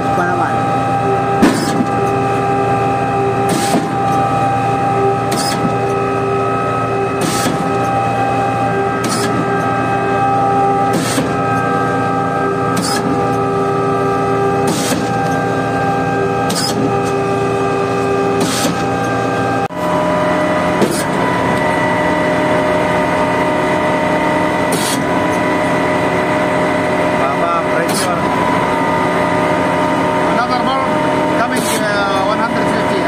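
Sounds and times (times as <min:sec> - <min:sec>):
concrete pump humming and whining: 0:00.0 - 0:33.0.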